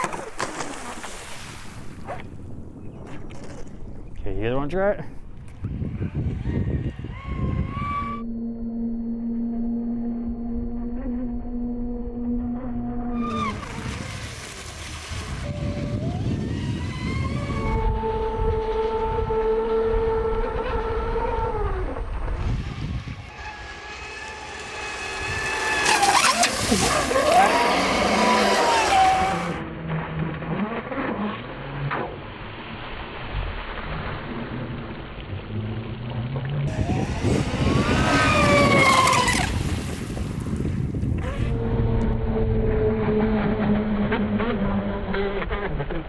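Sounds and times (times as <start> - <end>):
model boat motor whining: 6.9 - 29.6, 36.7 - 40.0, 41.0 - 46.0.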